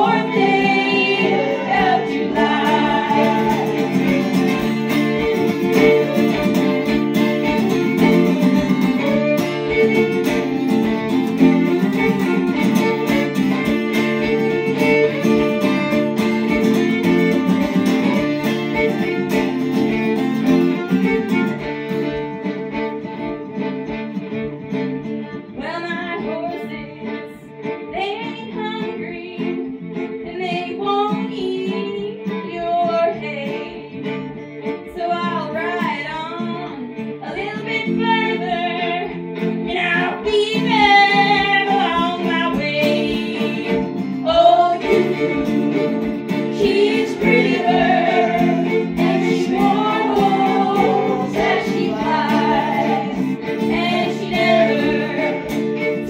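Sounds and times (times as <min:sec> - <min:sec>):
person singing: 0:00.0 - 0:19.4, 0:35.0 - 0:56.0
fiddle: 0:00.0 - 0:56.0
strummed acoustic guitar: 0:00.0 - 0:56.0.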